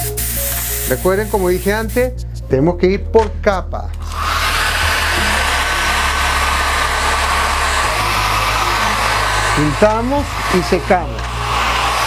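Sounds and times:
hair dryer blowing: 0:04.0 - 0:12.0.

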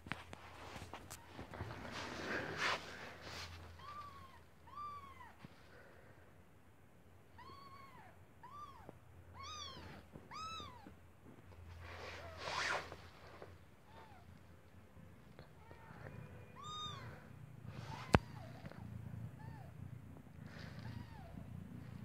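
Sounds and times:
kitten mewing: 0:20.5 - 0:21.4.

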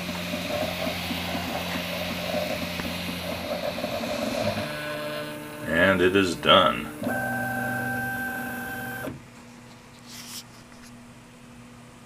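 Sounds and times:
stepper motors whining: 0:00.0 - 0:09.2
faint steady hum: 0:00.0 - 0:12.0.

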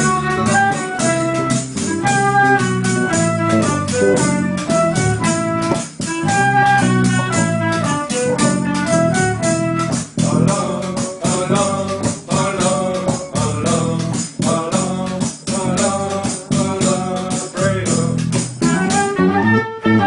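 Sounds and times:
instrumental melody: 0:00.0 - 0:20.0
percussion beat: 0:00.0 - 0:20.0.

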